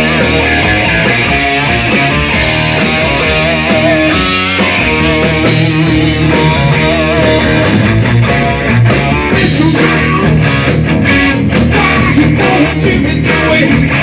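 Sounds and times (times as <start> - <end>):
wavering pitched line: 0.0 - 9.1
bass guitar: 0.0 - 14.0
drums: 0.0 - 14.0
electric guitars: 0.0 - 14.0.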